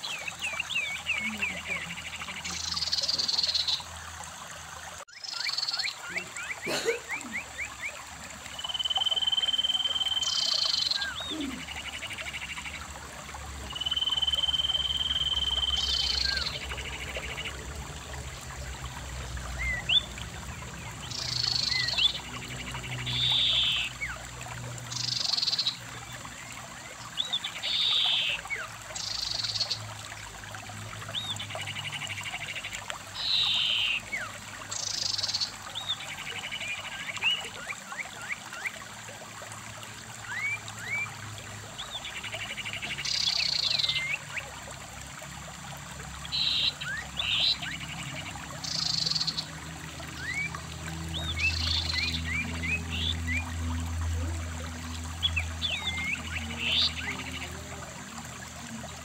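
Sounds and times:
trickling stream: 0.0 - 59.0.

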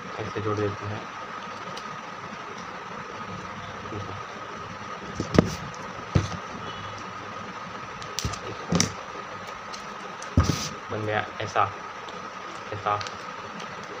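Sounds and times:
background hum with faint whine: 0.0 - 14.0
paper and tape clicks and rustles: 12.6 - 14.0.

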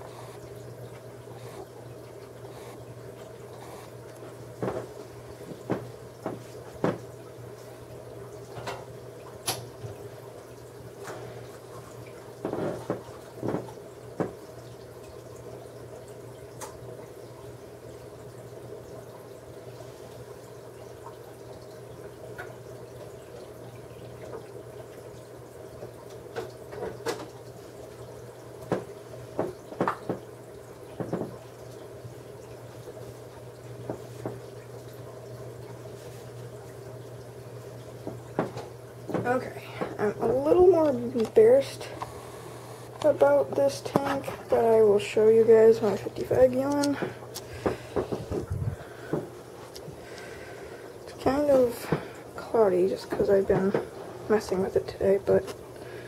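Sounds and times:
aquarium equipment humming: 0.0 - 56.0
faint water movement: 0.0 - 56.0
sharp clicks and splashes: 37.9 - 42.2, 42.9 - 50.4.

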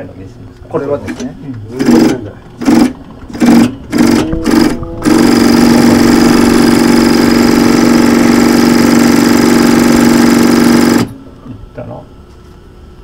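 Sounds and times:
sewing machine running: 1.8 - 11.1.

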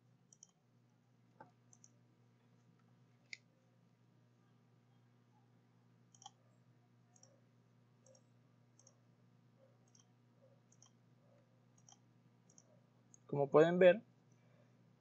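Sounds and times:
low steady hum: 0.0 - 15.0
computer mouse clicks: 0.3 - 0.6, 1.4 - 2.0, 6.1 - 6.4, 7.1 - 7.4, 8.0 - 9.0, 9.8 - 11.0, 11.7 - 13.3.

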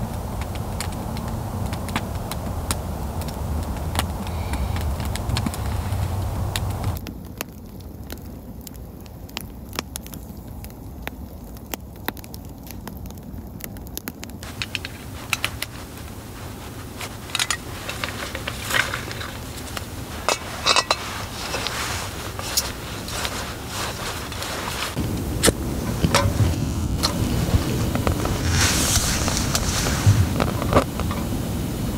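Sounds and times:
low rumble: 0.0 - 7.0, 14.5 - 31.9
wood fire crackling and popping: 0.0 - 31.9
metal clicks and scrapes: 14.4 - 23.3
down jacket rustling: 14.4 - 31.0.

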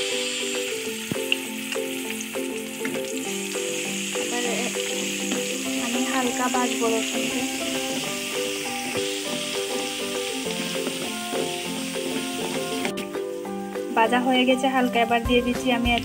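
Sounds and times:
background music: 0.0 - 16.0
garlic sizzling in hot oil: 0.0 - 16.0
spatula stirring in a pan: 1.0 - 13.0.

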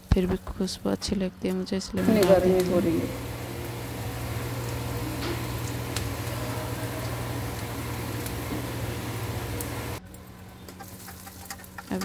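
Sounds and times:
steady low hum: 0.0 - 10.6.

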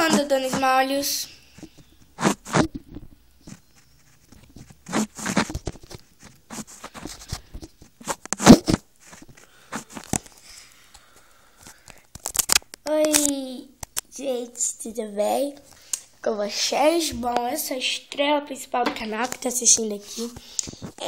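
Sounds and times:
toys rustling and scraping: 0.0 - 10.5.

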